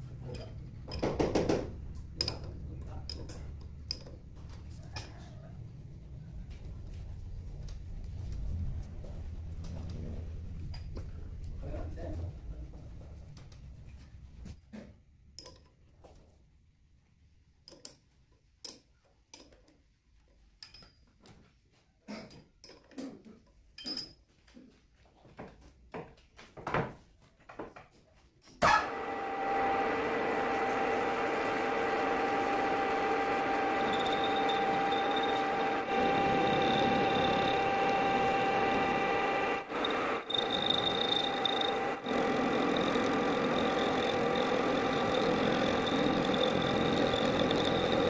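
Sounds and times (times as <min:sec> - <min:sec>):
lathe running with whine: 0:28.8 - 0:48.0.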